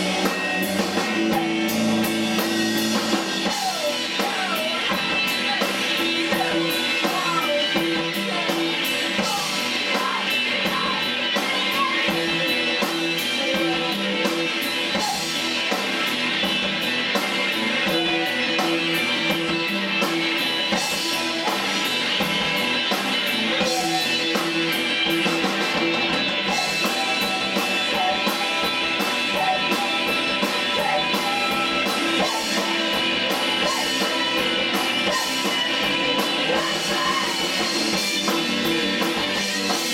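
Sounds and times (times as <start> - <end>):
bass guitar: 0.0 - 39.9
drum kit: 0.0 - 39.9
electric guitars: 0.0 - 39.9
woman singing: 0.9 - 1.8, 3.4 - 15.6, 23.3 - 24.7, 26.5 - 39.9.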